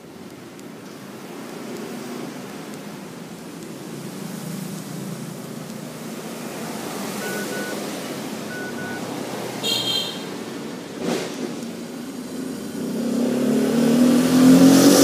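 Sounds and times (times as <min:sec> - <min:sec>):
traffic rumble: 0:00.0 - 0:15.0
short high beeps: 0:07.2 - 0:07.8, 0:08.5 - 0:09.1.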